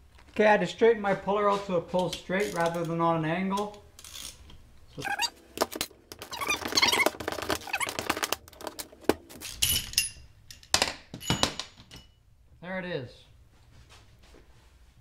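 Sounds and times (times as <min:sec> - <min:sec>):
metal clicks knocks and squeaks: 0:05.0 - 0:05.3, 0:06.2 - 0:08.4.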